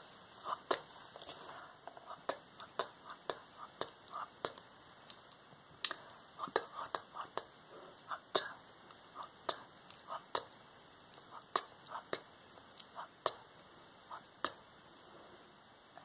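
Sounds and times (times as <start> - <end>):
person whispering: 5.9 - 10.6.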